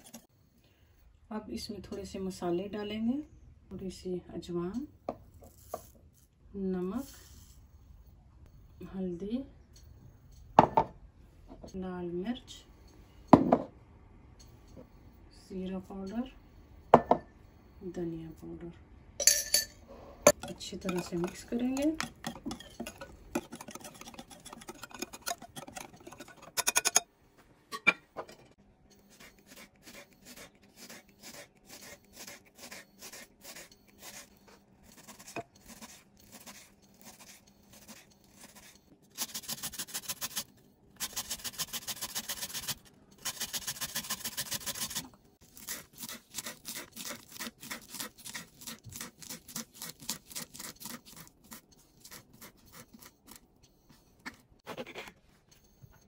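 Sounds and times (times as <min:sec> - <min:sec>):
whisk clattering in glass bowl: 0:20.4 - 0:27.0.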